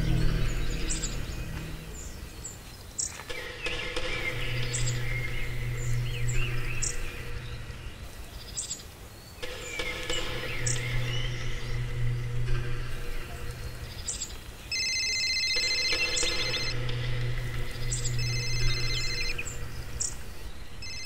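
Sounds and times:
forest birds chirping: 0.0s - 21.0s
low steady hum: 0.0s - 21.0s.

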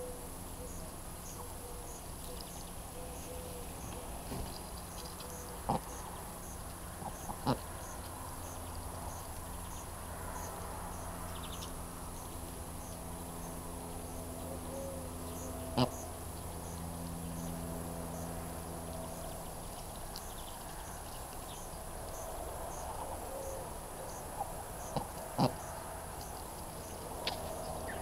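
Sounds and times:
cricket chirping: 0.0s - 28.0s.

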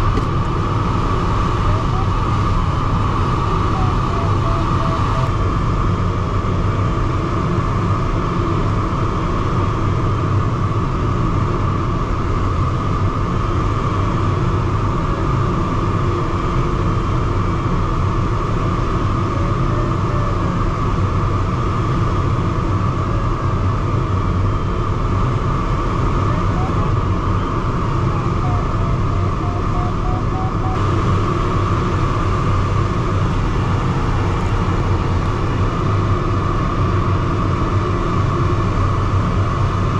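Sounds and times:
air rushing past cockpit: 25.2s - 39.9s.

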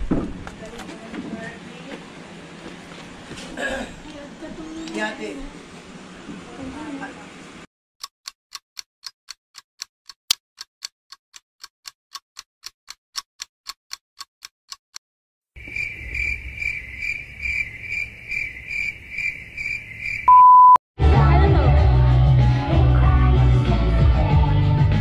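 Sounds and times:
steady sharp ticking: 8.0s - 15.0s
crickets chirping: 15.6s - 20.4s.

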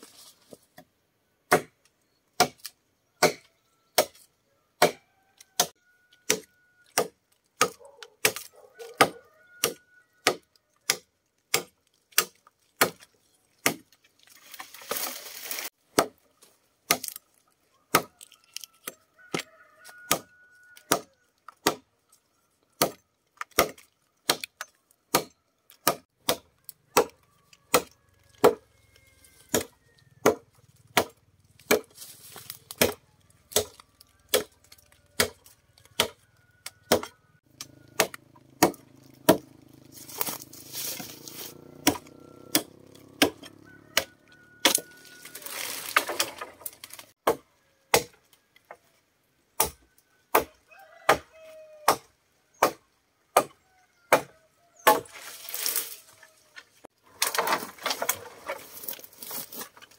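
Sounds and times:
sharp blows on wood: 38.0s - 45.5s.

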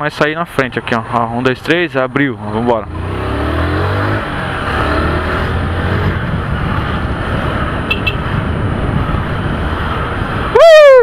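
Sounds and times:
road and wind rush: 0.0s - 11.0s
motorcycle engine revving: 2.4s - 10.5s.

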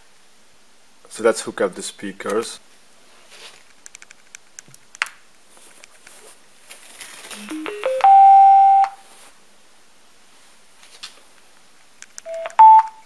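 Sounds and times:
electronic chime: 7.4s - 9.0s.

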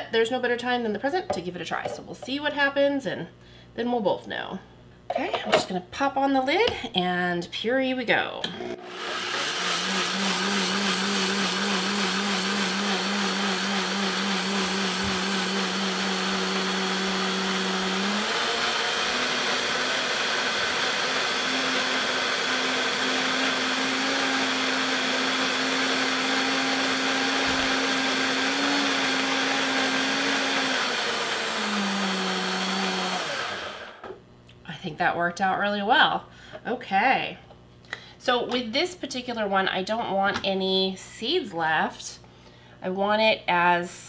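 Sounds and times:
blender motor running: 8.6s - 34.0s.

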